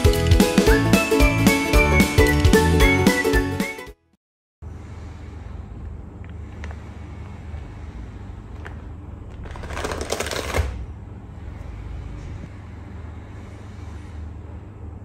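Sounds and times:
plastic packet crinkling: 9.4 - 10.8.

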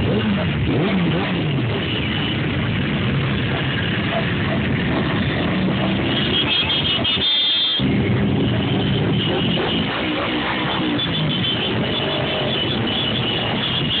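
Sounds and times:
high pulsing horn tone: 5.3 - 14.0.

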